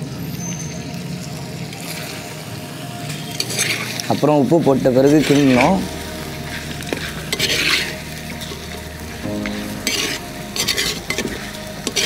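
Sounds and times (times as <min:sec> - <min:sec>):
food sizzling in pot: 0:00.0 - 0:12.0
ladle scraping through pot: 0:05.1 - 0:05.8, 0:06.6 - 0:08.7, 0:09.5 - 0:12.0.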